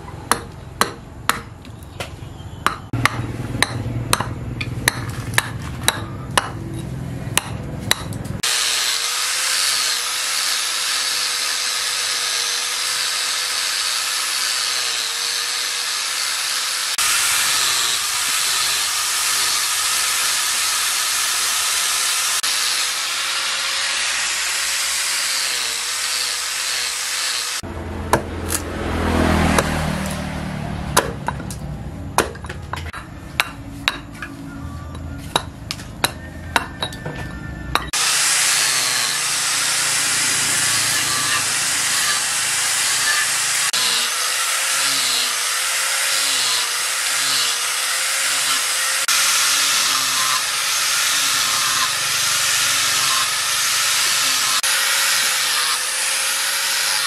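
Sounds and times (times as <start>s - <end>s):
hatchet chopping wood: 0.2s - 1.8s, 2.6s - 6.7s, 7.3s - 8.6s, 28.1s - 28.8s, 29.4s - 30.3s, 30.9s - 31.6s, 32.2s - 34.2s
angle grinder sanding wood: 8.3s - 27.7s, 37.8s - 57.0s.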